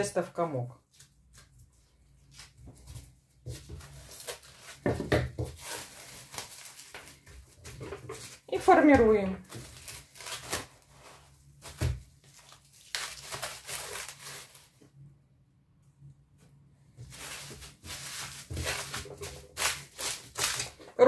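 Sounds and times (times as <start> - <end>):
cling film crinkling: 12.2 - 14.8, 17.1 - 20.8.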